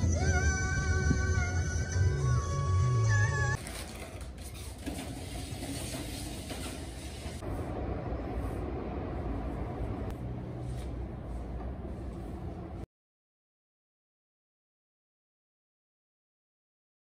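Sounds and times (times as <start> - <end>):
slippers scuffing: 10.6 - 12.8.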